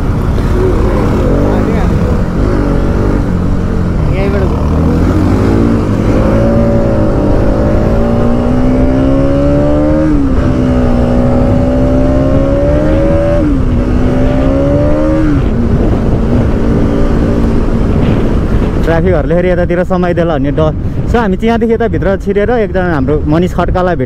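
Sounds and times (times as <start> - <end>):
motorcycle engine accelerating: 0.0 - 19.0
wind rumble on microphone: 0.0 - 24.0.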